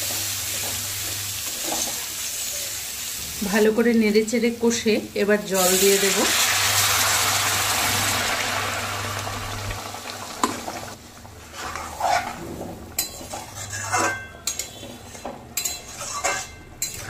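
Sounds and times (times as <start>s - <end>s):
water sizzling in hot oil: 0.0s - 14.0s
metal spatula scraping pan: 11.4s - 17.0s
spatula clinking on metal: 13.0s - 17.0s.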